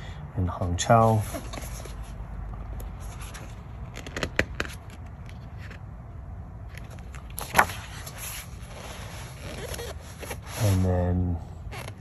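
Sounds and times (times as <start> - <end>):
paper page rustling: 6.8 - 10.9.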